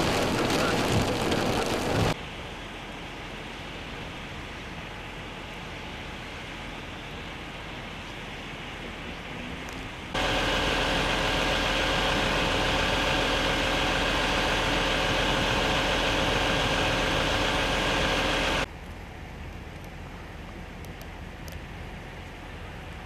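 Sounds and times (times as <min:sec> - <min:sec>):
floodwater rushing: 0:00.0 - 0:18.7
vehicle engine idling: 0:10.1 - 0:23.0.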